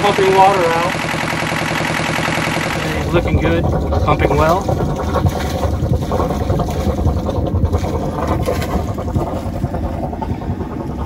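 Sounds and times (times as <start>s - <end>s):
exhaust water splashing: 0.0s - 11.0s
marine diesel engine rumbling: 0.0s - 11.0s.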